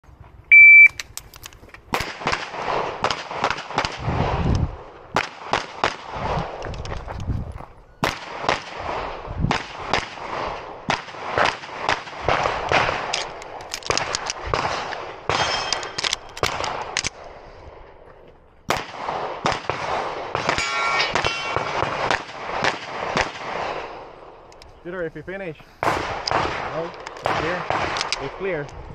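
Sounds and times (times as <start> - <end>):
rapid pistol shots: 1.9 - 4.4, 5.1 - 6.6, 8.0 - 17.1, 18.7 - 24.2, 25.8 - 28.5
steel targets ringing: 15.3 - 16.0, 20.5 - 21.8.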